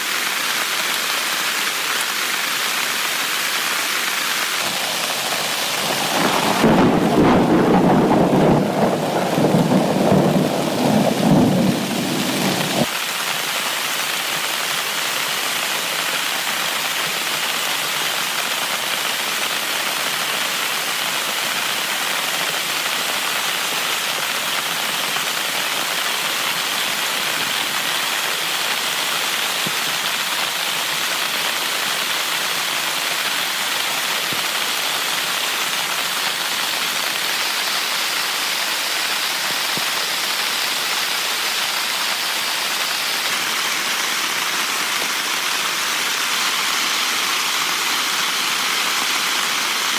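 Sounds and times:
heavy rain falling: 0:00.0 - 0:49.9
thunder rumbling: 0:04.7 - 0:12.9.

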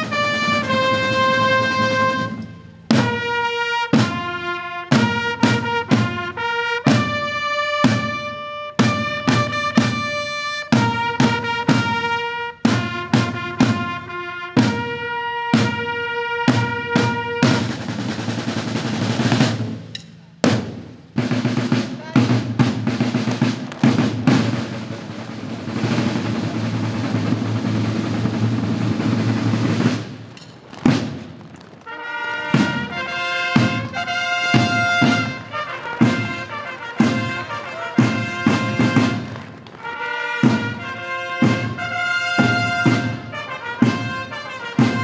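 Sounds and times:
brass fanfare: 0:00.0 - 0:19.7, 0:31.8 - 0:45.0
snare drum roll: 0:00.0 - 0:45.0.

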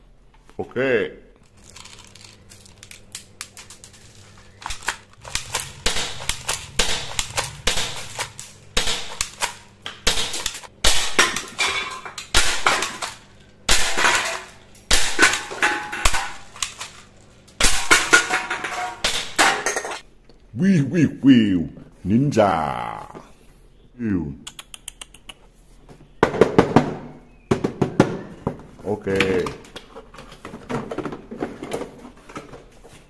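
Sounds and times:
toy gun firing clacks: 0:04.6 - 0:11.2.

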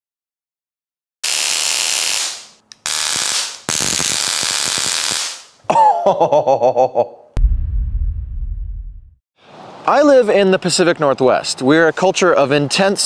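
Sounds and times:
stun gun crackling buzz: 0:01.2 - 0:05.5.

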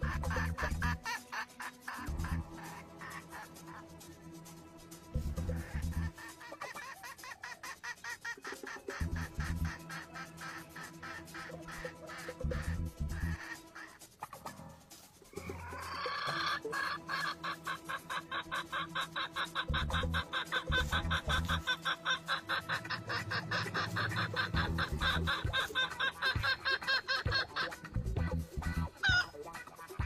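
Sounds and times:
junglefowl clucking: 0:00.0 - 0:04.1, 0:05.2 - 0:30.0.

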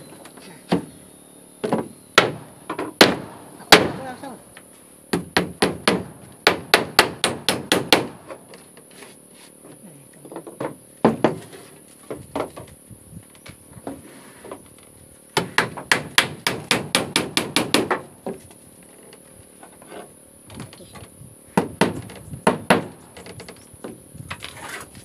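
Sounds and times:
hammer nailing wooden floorboards: 0:05.1 - 0:08.4, 0:10.6 - 0:11.5, 0:15.4 - 0:18.4, 0:21.6 - 0:23.0.

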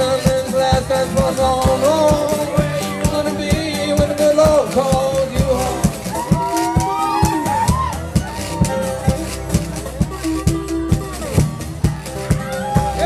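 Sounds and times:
man singing: 0:00.0 - 0:07.5
fingerpicked acoustic guitar: 0:00.0 - 0:13.0.

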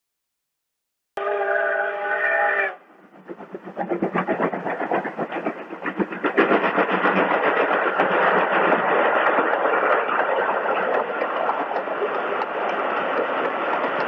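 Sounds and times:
steam locomotive whistle: 0:01.2 - 0:02.9
locomotive chuffing: 0:01.3 - 0:14.0
train clatter: 0:02.8 - 0:14.0.

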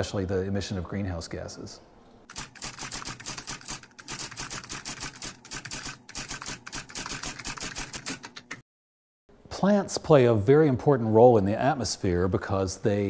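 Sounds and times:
typewriter keys clicking: 0:02.3 - 0:08.6.

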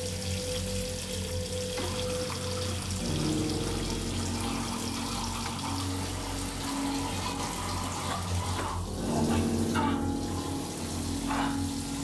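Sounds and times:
faucet water splashing into sink: 0:00.0 - 0:12.0.

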